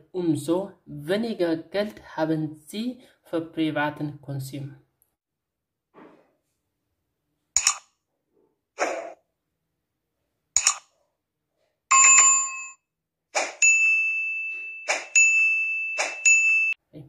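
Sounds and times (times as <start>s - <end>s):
bright bell chime: 13.6s - 16.8s.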